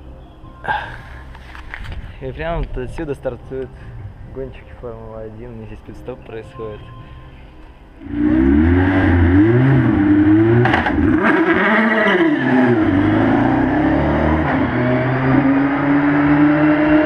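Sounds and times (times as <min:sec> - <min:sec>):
racing car engine revving: 0:08.0 - 0:17.0.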